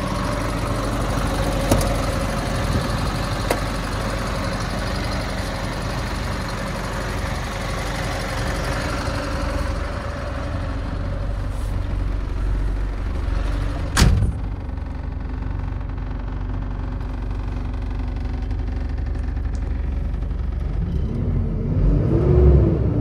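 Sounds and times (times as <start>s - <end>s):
diesel truck engine idling: 0.0s - 22.0s
cab door shutting: 1.6s - 2.1s, 13.9s - 14.5s.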